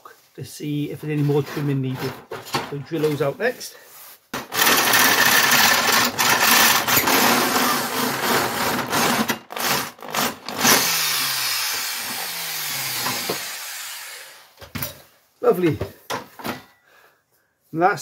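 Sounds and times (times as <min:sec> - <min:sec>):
electric drill boring through steel: 0:04.4 - 0:14.6.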